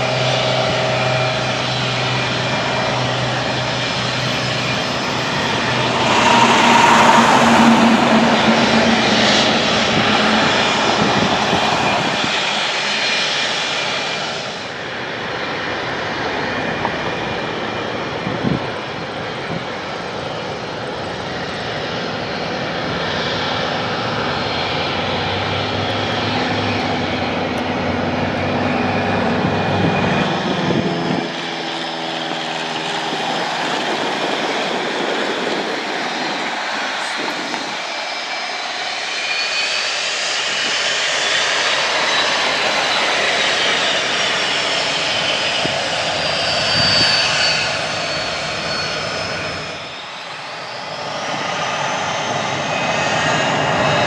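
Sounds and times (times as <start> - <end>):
high whine: 0.0 - 14.8
propeller airplane engine drone: 0.0 - 54.0.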